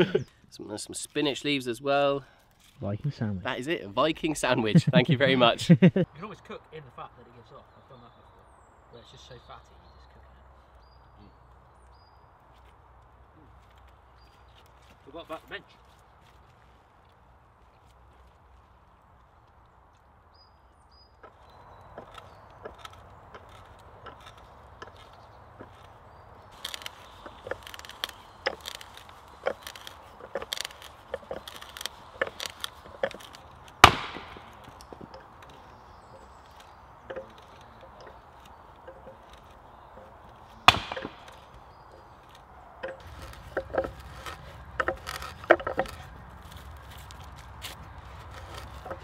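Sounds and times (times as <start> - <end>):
logs splitting with cracks: 21.1 - 49.0
axe chopping wood: 32.2 - 35.1, 40.6 - 41.6.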